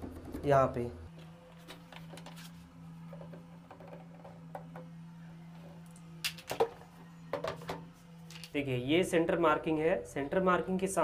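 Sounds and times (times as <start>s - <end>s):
steady low hum: 1.0s - 10.2s.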